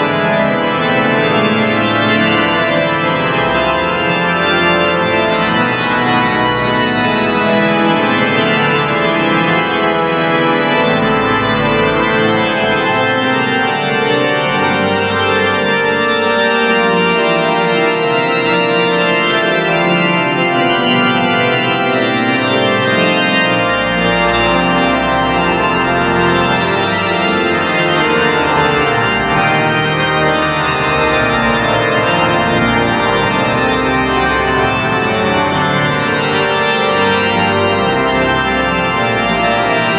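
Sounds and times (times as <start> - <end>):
deep organ pedal bass notes: 0.0 - 39.9
organ playing: 0.0 - 39.9.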